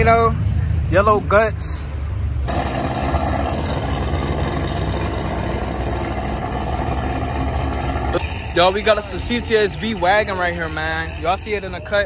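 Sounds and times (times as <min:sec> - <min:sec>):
car engine idling: 0:02.5 - 0:12.0.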